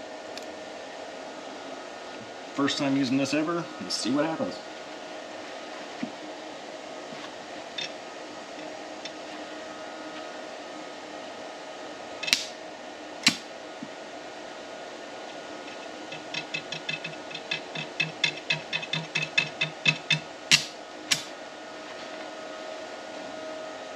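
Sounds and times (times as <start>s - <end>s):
fan hum: 0.0s - 23.9s
sharp snaps: 12.2s - 12.6s, 13.2s - 13.5s, 19.9s - 21.3s
quick rhythmic tapping: 15.7s - 21.3s.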